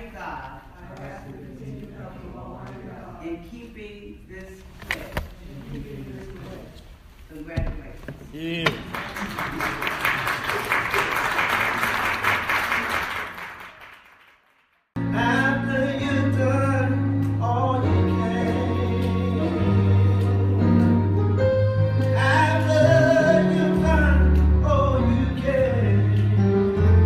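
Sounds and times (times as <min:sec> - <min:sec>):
applause: 0:08.8 - 0:14.9
music: 0:15.0 - 0:27.0
sustained bass and instruments: 0:15.0 - 0:27.0.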